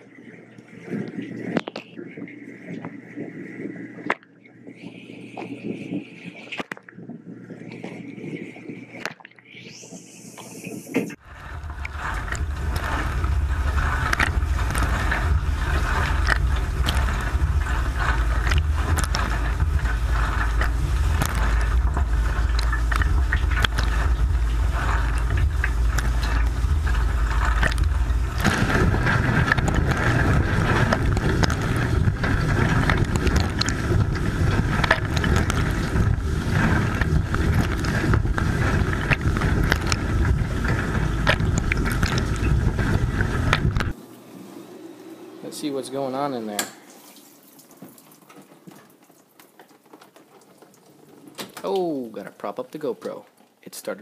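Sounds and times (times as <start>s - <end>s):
water jets spraying: 9.4s - 54.0s
dishwasher pump rumble: 10.8s - 53.7s.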